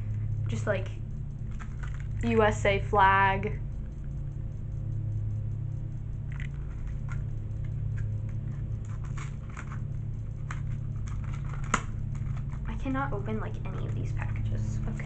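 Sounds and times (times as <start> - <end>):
steady low hum: 0.0 - 15.0
package crinkling and clicking: 1.5 - 2.2, 7.9 - 12.7.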